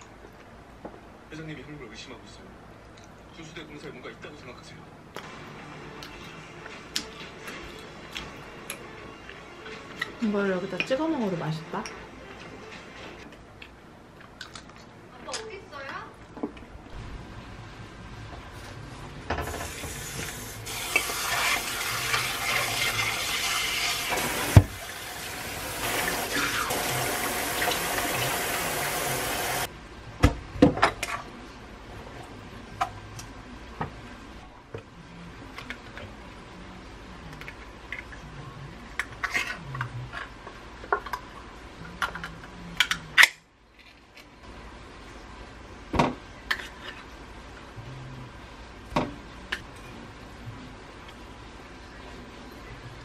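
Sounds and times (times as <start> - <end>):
tap water running into metal bowl: 19.6 - 29.7.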